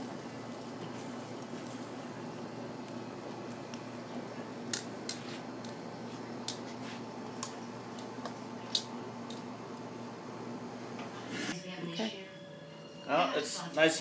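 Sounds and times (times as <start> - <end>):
steady low hum: 0.0 - 14.0
metal grill tongs clicking: 4.7 - 5.8, 8.7 - 9.4.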